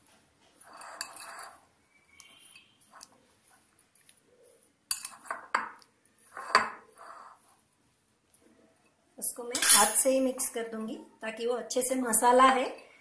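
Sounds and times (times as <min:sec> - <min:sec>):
sharp clinks against glass bowl: 0:09.5 - 0:10.0.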